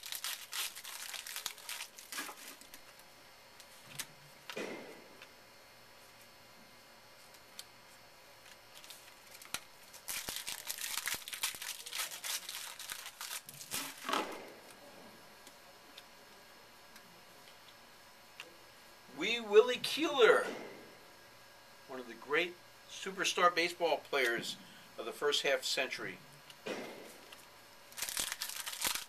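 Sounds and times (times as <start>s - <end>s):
wrappers crinkling: 0.0s - 3.0s, 8.4s - 14.8s, 27.9s - 29.0s.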